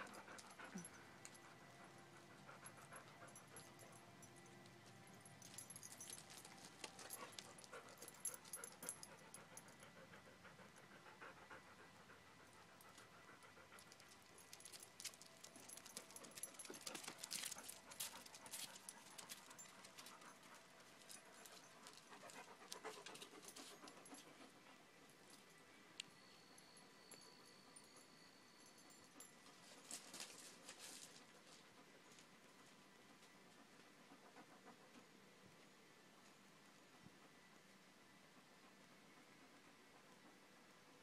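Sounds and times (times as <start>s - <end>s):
dogs panting: 0.0s - 25.5s, 28.8s - 35.5s, 38.2s - 41.0s
light clicks and scuffs: 29.5s - 32.3s.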